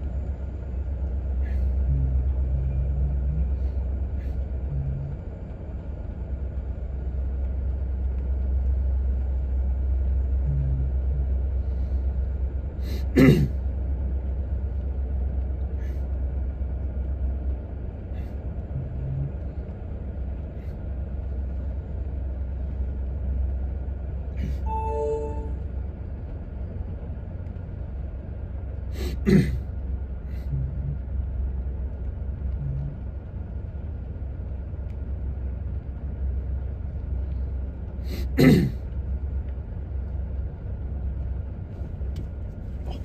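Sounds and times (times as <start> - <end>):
freight train rumbling past: 0.0 - 43.0
person coughing: 12.9 - 13.5, 29.0 - 29.6, 38.1 - 38.8.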